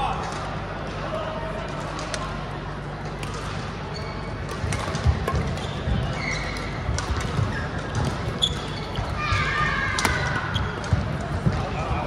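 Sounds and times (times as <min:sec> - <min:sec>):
shoes squeaking on floor: 0:03.9 - 0:04.5, 0:05.4 - 0:09.5, 0:10.4 - 0:11.0.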